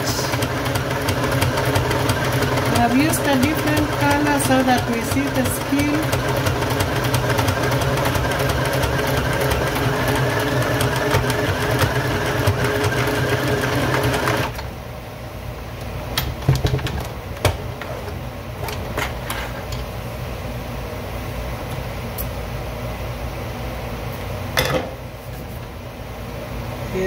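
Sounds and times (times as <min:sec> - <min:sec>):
sewing machine stitching: 0:00.0 - 0:14.6.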